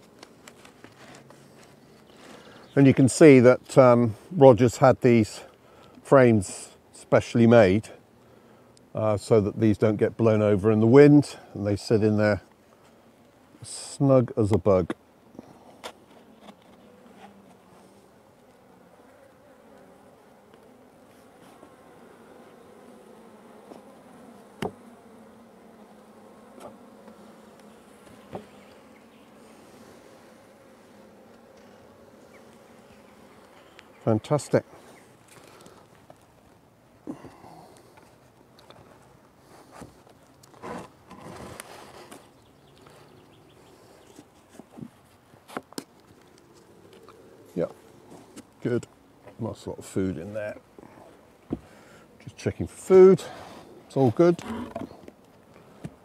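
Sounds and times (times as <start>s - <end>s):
bees buzzing: 0.0s - 4.0s, 6.9s - 45.1s, 45.8s - 56.0s
knock on wooden hive box: 24.6s - 24.8s.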